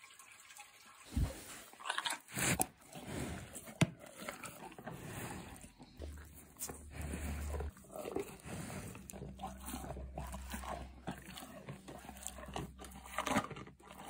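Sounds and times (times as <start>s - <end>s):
cow crunching sweet potato: 1.1s - 14.0s.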